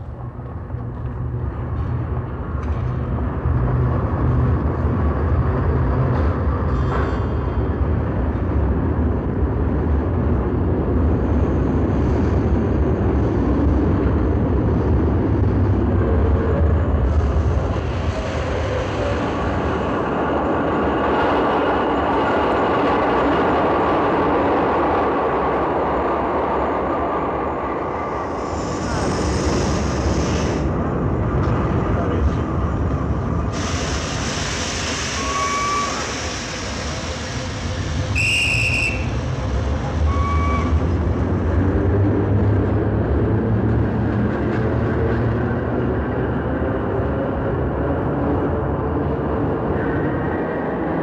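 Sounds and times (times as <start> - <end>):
train wheels and motors rumbling: 0.0 - 51.0
high-pitched train squeals: 33.6 - 41.0.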